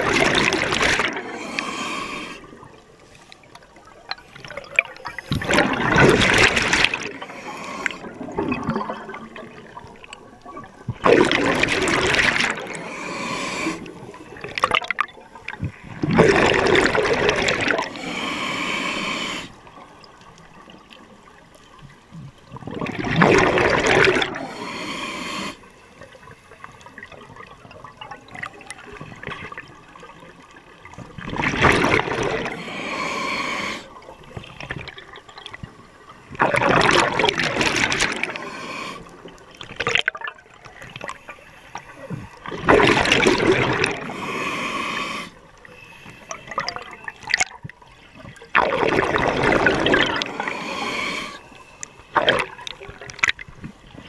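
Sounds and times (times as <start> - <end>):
regulator exhaled bubbles: 5.0 - 9.8, 48.6 - 51.5.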